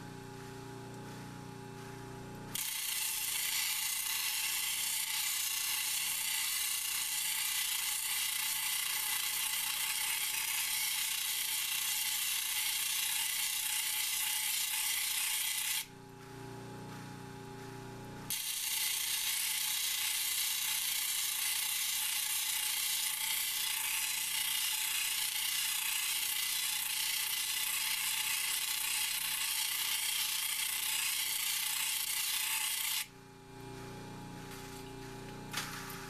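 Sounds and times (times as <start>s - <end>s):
stone grinding on wet disc: 2.5s - 15.9s, 18.3s - 33.1s.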